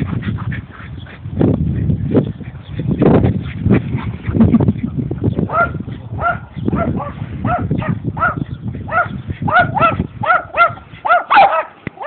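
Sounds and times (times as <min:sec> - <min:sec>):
dog barking: 0:05.5 - 0:12.0.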